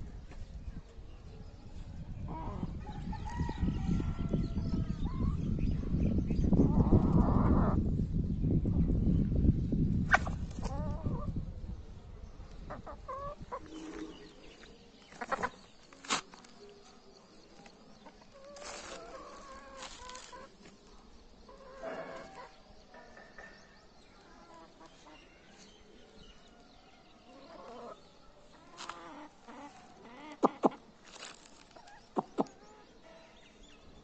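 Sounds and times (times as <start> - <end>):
hens clucking: 12.7 - 14.2, 15.1 - 15.6, 18.3 - 20.5, 27.4 - 30.9, 31.7 - 32.7.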